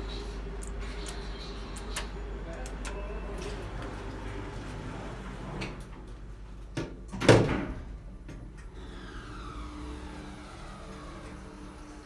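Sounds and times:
faint falling whine: 9.0 - 12.0.

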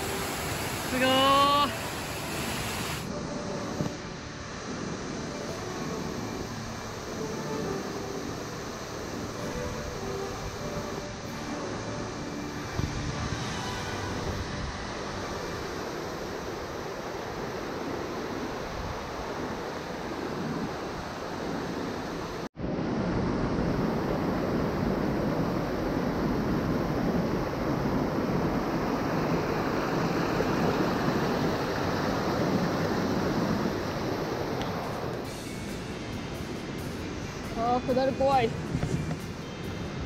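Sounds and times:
waterfall rushing: 0.0 - 22.5
white water churning: 0.0 - 22.5, 23.8 - 35.4.

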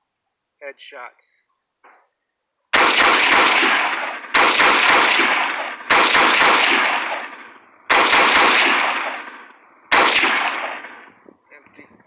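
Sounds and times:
rifle gunfire with echo: 2.7 - 11.1.

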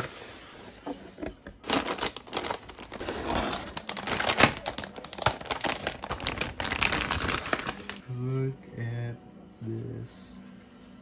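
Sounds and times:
plastic bag crinkling: 1.6 - 8.1.

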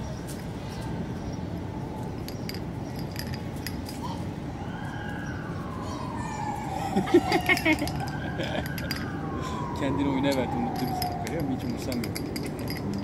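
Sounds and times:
traffic rumble: 0.0 - 13.0
distant siren sliding down: 4.5 - 12.3.

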